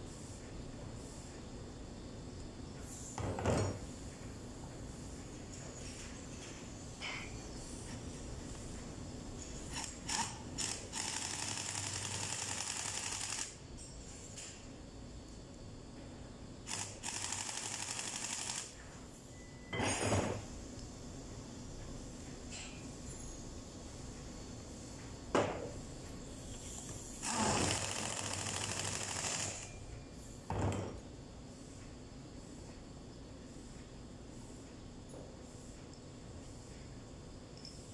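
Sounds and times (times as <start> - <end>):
pneumatic impact wrench hammering: 9.7 - 13.6, 16.7 - 18.8, 27.2 - 29.7.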